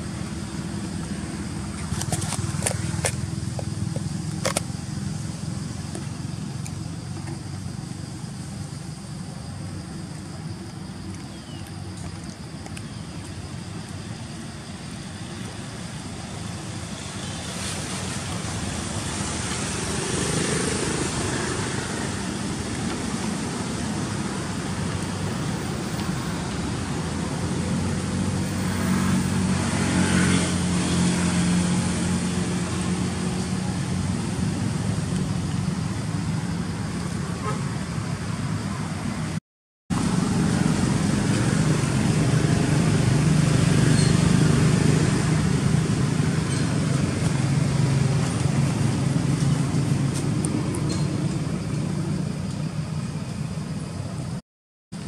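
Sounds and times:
road traffic passing: 0:00.0 - 0:54.4.

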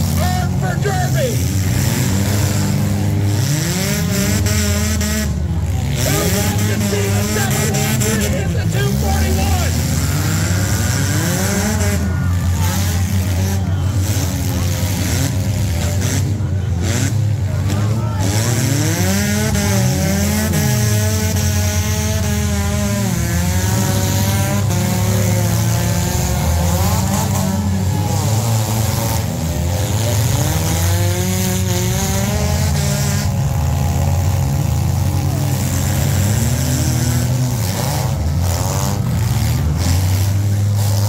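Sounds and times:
car engines revving: 0:00.0 - 0:41.0.

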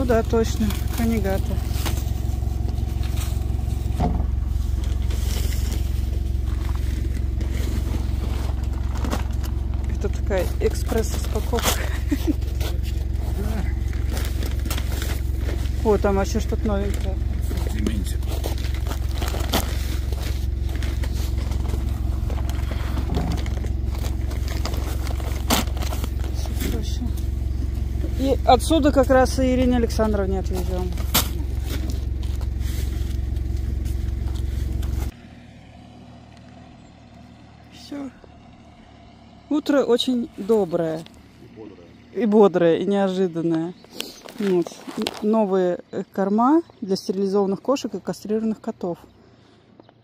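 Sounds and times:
truck engine idling: 0:00.0 - 0:50.0
sacks scraping and rustling: 0:00.5 - 0:16.1, 0:16.7 - 0:27.0.

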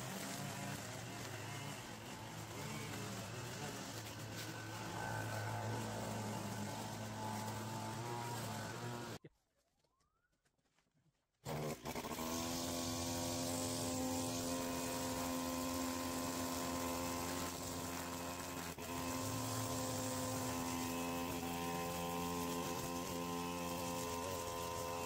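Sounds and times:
brush cutter cutting grass: 0:00.0 - 0:09.2, 0:11.4 - 0:25.0.

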